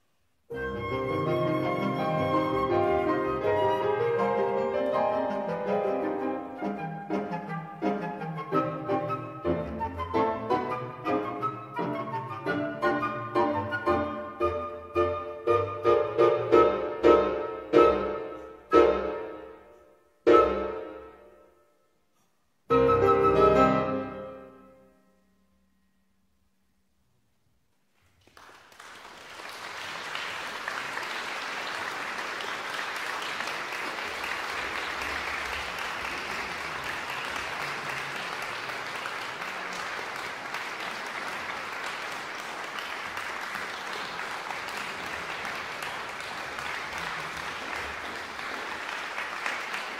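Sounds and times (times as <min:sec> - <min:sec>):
audience applauding: 0:28.0 - 0:49.9.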